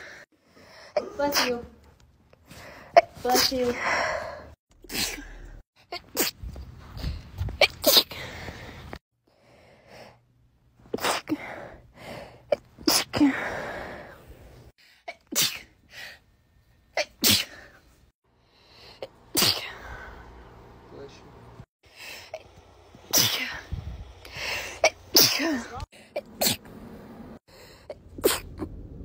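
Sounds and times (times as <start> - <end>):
woman sneezing: 12.8 - 13.4, 15.2 - 15.8, 17.0 - 17.6, 19.4 - 19.8, 23.1 - 23.6, 24.7 - 26.6, 28.2 - 28.6.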